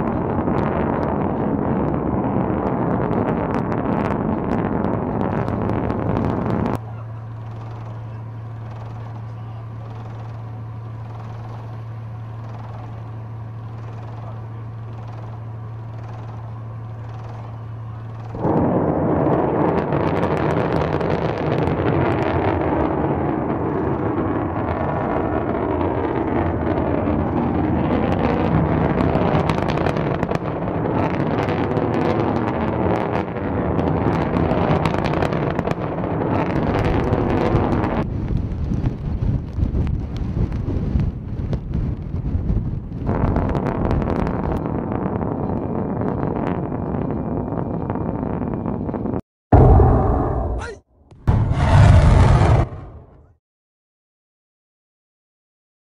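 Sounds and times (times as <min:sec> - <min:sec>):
steady low hum: 0:00.0 - 0:22.0
rocket motor roar: 0:00.0 - 0:48.8, 0:49.5 - 0:53.4.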